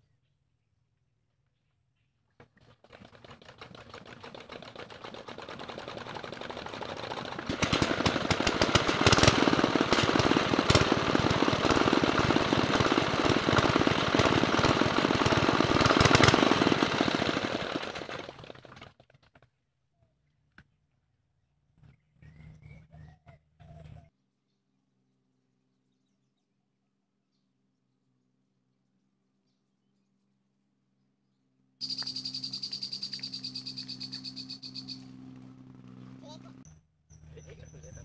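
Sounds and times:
diesel engine starting and clattering: 0:02.4 - 0:19.4.

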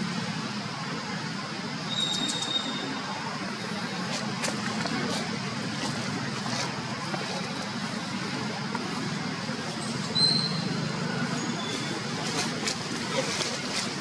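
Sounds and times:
brief high squeak: 0:01.9 - 0:02.8, 0:10.1 - 0:10.6.

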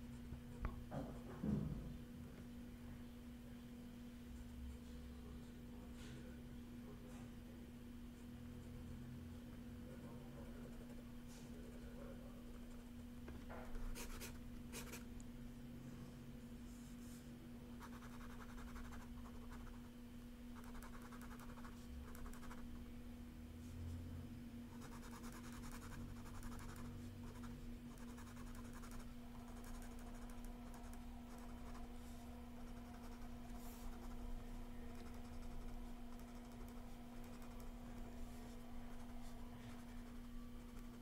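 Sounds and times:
steady low hum: 0:00.0 - 0:41.0
pen scratching on paper: 0:13.7 - 0:15.0, 0:24.8 - 0:31.8, 0:34.9 - 0:37.7.

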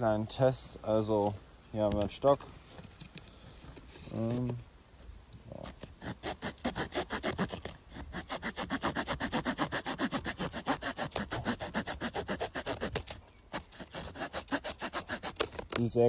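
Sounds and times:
small saw cutting wood: 0:05.6 - 0:15.8.

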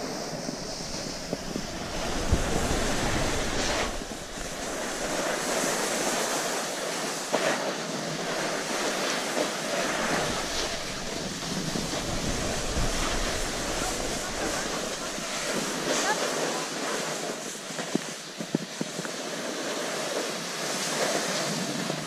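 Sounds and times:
wind on microphone: 0:00.0 - 0:06.9, 0:08.0 - 0:16.4
skis scraping on snow: 0:00.0 - 0:22.0.

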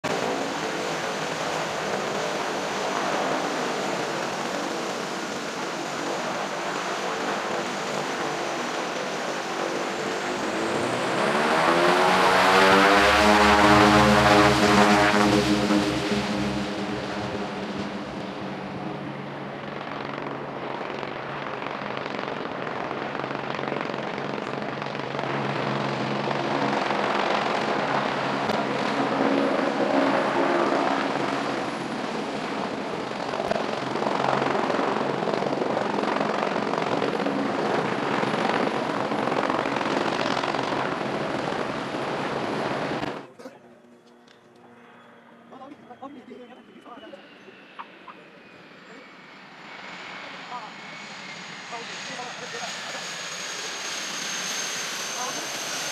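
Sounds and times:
helicopter hovering: 0:00.0 - 0:55.9
turboprop plane engine drone: 0:00.0 - 0:55.9
loud rushing noise: 0:10.5 - 0:19.8.

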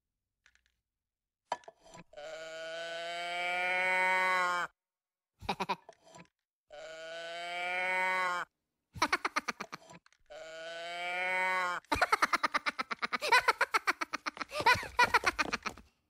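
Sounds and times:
moo toy calls: 0:02.1 - 0:04.8, 0:06.7 - 0:08.5, 0:10.2 - 0:11.9.

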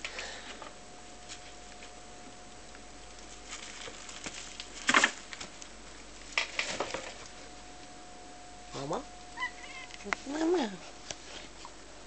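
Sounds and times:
plastic bag crinkling: 0:03.1 - 0:07.4.

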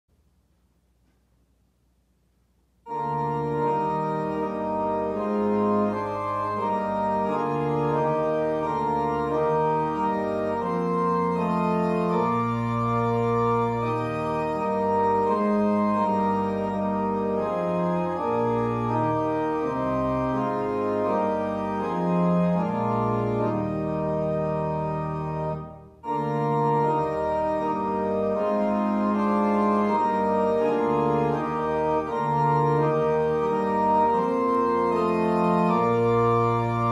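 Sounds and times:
organ music: 0:02.8 - 0:36.9.

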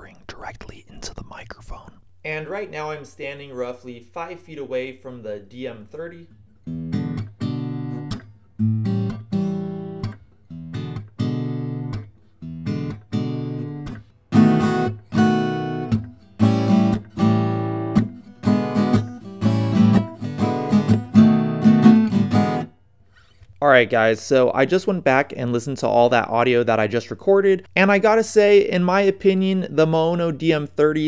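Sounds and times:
acoustic guitar strumming: 0:06.6 - 0:22.7.

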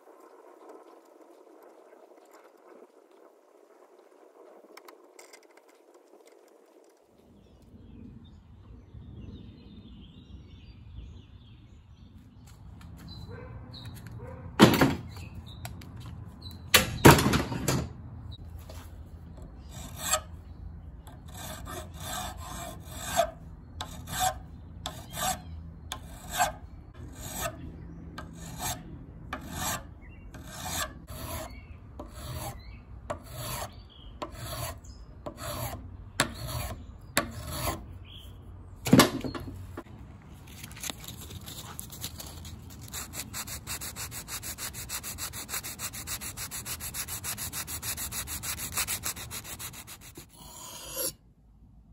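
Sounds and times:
hand file scraping wood: 0:19.5 - 0:20.3, 0:21.0 - 0:27.6, 0:28.2 - 0:37.9, 0:41.5 - 0:51.2.

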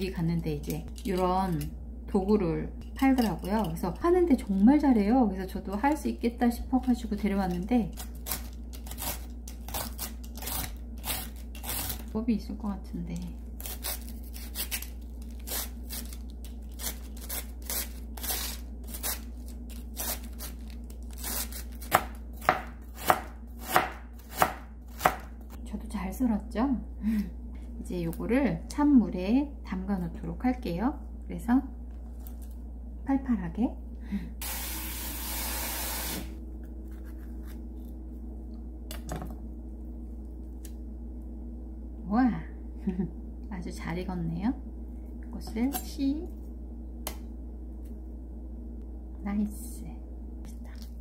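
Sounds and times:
knife chopping on cutting board: 0:21.9 - 0:25.3
tap water running: 0:34.4 - 0:36.3.

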